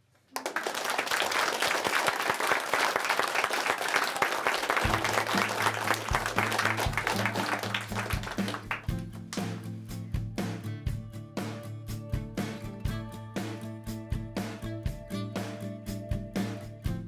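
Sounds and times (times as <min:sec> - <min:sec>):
children clapping: 0:00.0 - 0:09.5
music: 0:04.5 - 0:17.0.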